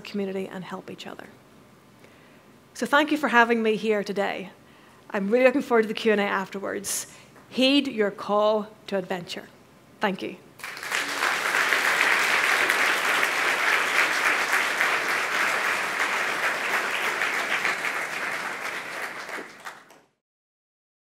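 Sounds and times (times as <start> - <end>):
audience applauding: 10.6 - 20.2.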